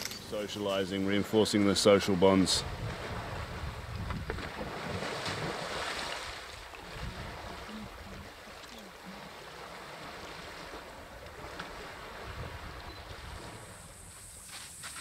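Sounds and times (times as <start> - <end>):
wind rumbling on microphone: 2.2 - 8.4, 10.6 - 15.0.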